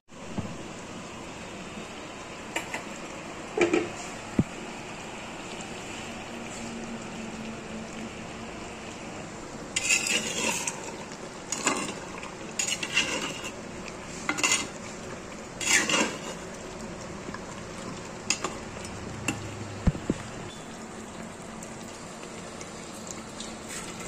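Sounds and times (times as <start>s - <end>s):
spatula scraping clay pot: 9.8s - 10.8s, 12.6s - 13.6s, 15.6s - 16.4s.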